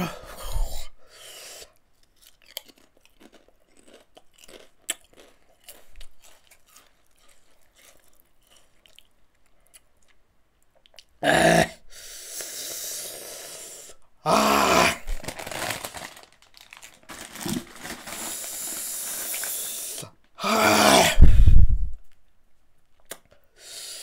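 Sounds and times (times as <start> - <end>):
chips crunching while chewed: 2.0 - 10.2, 15.2 - 19.7.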